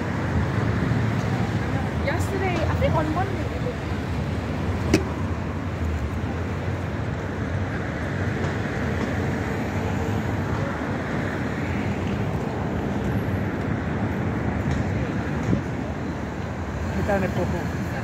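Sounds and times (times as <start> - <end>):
city street traffic rumble: 0.0 - 18.0.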